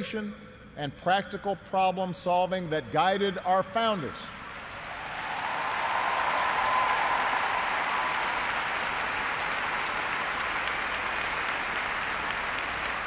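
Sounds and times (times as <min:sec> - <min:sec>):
crowd applauding: 0:04.6 - 0:13.0.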